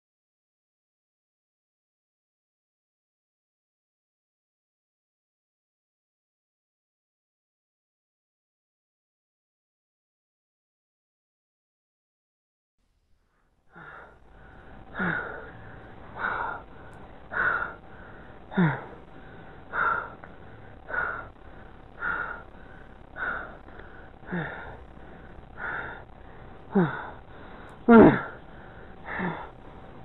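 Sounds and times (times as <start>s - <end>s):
person breathing heavily: 13.7s - 30.0s
person groaning: 14.9s - 21.4s, 22.0s - 26.0s, 26.7s - 29.6s.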